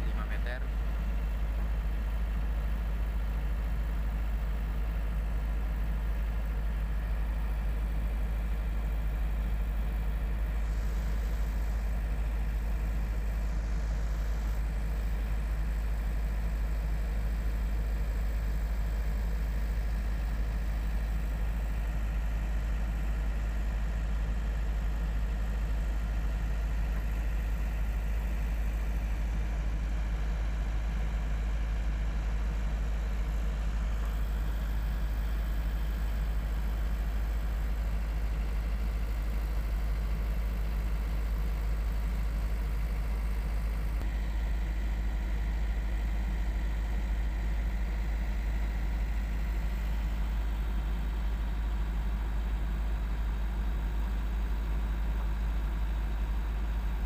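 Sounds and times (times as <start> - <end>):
diesel engine droning: 0.0 - 21.8.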